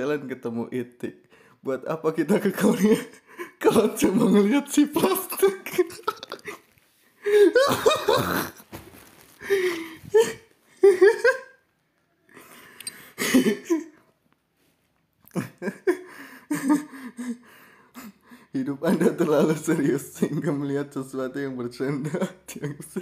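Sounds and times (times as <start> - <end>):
man laughing: 2.4 - 8.7, 9.4 - 11.6, 13.2 - 14.0, 15.3 - 17.4.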